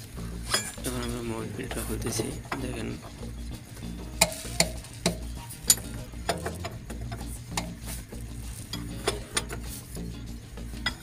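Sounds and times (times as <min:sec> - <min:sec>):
metallic clicks and knocks: 0:04.2 - 0:07.8, 0:08.7 - 0:09.7.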